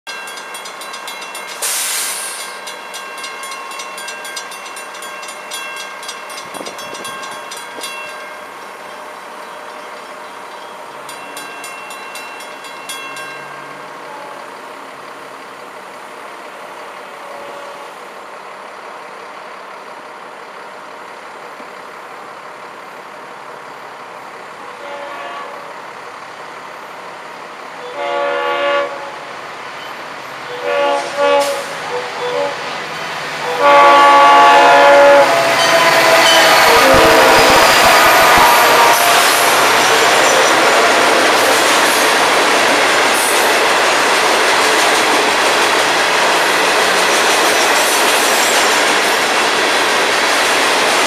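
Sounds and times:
crossing warning bell ringing: 0:00.1 - 0:15.6, 0:29.8 - 0:47.8
short loud hiss: 0:01.6 - 0:02.5.

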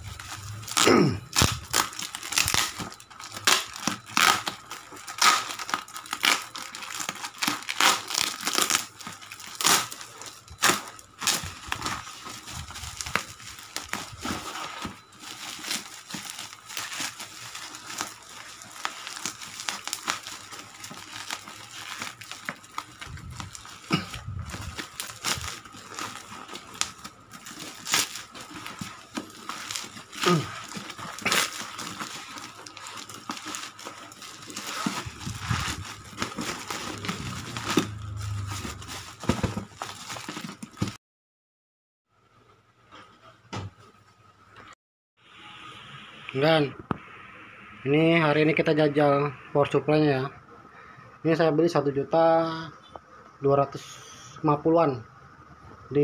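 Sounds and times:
plastic wrapping crinkling and tearing: 0:00.0 - 0:41.0.

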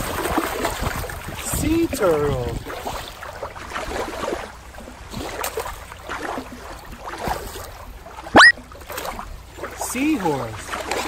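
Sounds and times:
water lapping over rock: 0:02.5 - 0:09.7.

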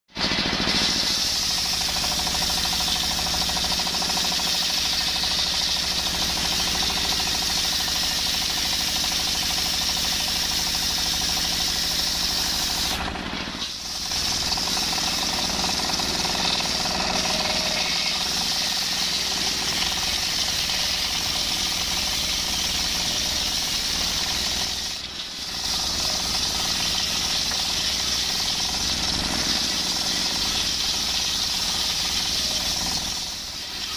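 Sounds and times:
diesel engine knocking: 0:00.1 - 0:24.9, 0:25.6 - 0:33.4
circular saw whining through log: 0:00.2 - 0:33.9.

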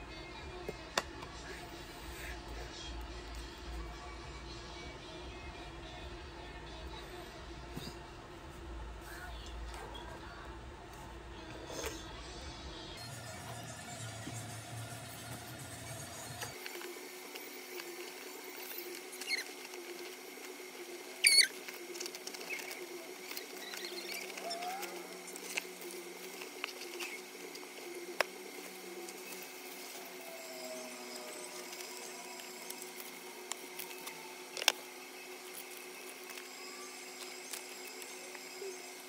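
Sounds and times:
paper crinkling and rustling: 0:21.4 - 0:30.0.

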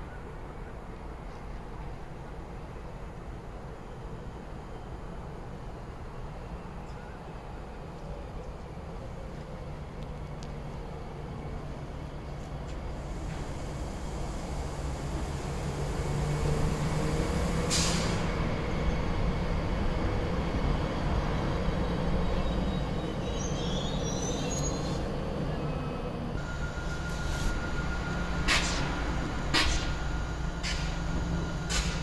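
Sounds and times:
train rumbling and braking: 0:00.0 - 0:32.0
locomotive low hum and whine: 0:00.1 - 0:32.0
short hiss: 0:17.6 - 0:18.3
brake squeals: 0:21.9 - 0:32.0.

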